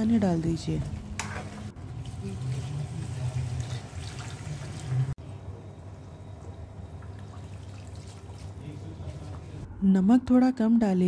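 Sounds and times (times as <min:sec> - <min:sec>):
water pouring into a pan: 0:01.9 - 0:05.2.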